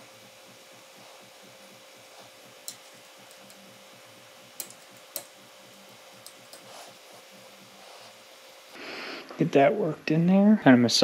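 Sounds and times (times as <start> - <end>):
low steady hum: 0.0 - 11.0
metal pick ticking on metal: 2.6 - 3.6, 4.6 - 5.4.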